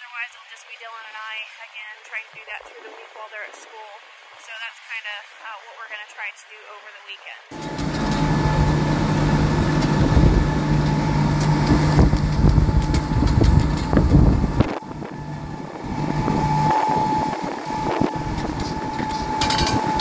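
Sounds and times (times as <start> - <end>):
heavy engine running: 7.5 - 20.0
steady higher tone: 7.5 - 20.0
wind buffeting microphone: 7.5 - 20.0.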